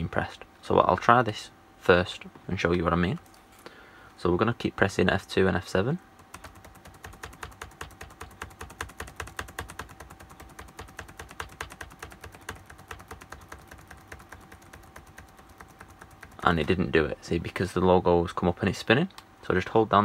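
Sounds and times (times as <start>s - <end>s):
laptop keys tapped rapidly: 6.2s - 16.9s.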